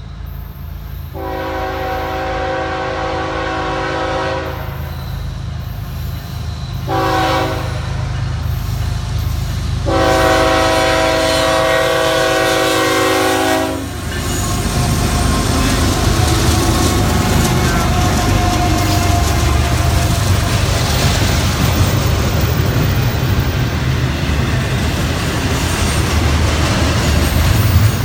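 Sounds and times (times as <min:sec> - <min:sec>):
low rumble of approaching train: 0:00.0 - 0:28.0
locomotive air horn blasts: 0:01.1 - 0:04.9, 0:06.8 - 0:08.1, 0:09.8 - 0:20.6.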